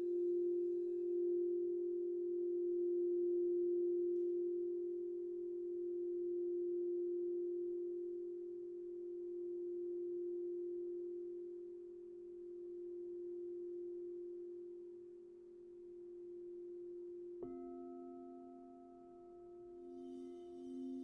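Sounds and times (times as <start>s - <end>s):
crystal bowl struck with mallet: 17.4s - 21.0s
crystal singing bowl ringing: 17.4s - 21.0s.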